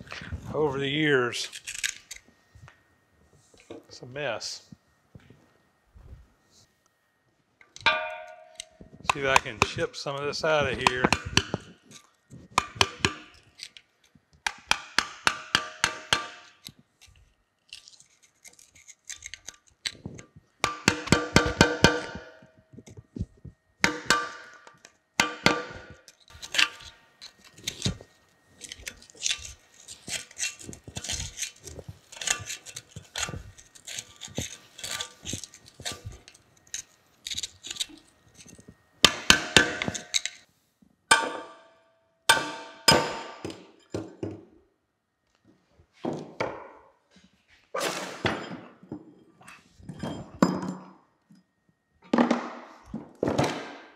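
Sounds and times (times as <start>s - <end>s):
hammer tapping chisel on metal: 7.8s - 9.8s, 10.7s - 11.7s, 14.4s - 16.7s, 20.6s - 22.5s, 39.0s - 40.4s.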